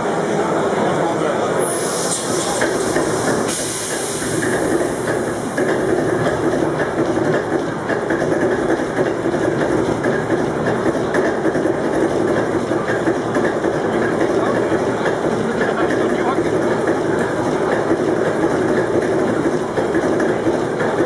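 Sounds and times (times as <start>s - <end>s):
loud hiss: 1.6s - 6.7s.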